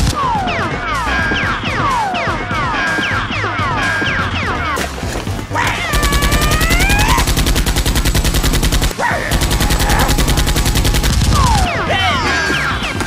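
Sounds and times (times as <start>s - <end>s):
rapid automatic gunfire: 5.9s - 11.7s.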